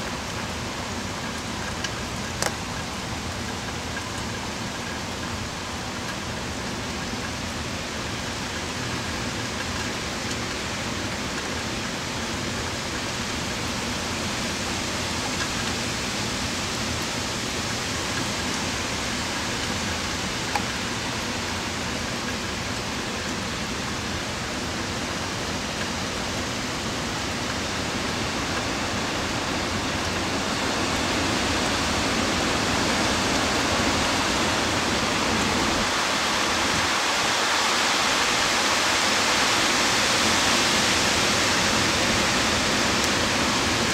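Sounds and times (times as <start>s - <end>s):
heavy rain and wind: 0.0s - 43.9s.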